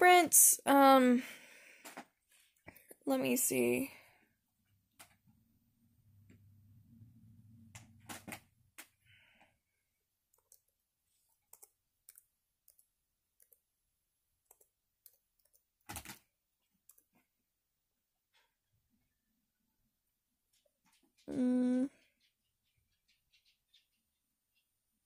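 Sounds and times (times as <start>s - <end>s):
faint low hum: 4.0s - 8.7s
computer clicks and taps: 10.3s - 10.7s, 11.4s - 13.6s, 14.4s - 16.2s.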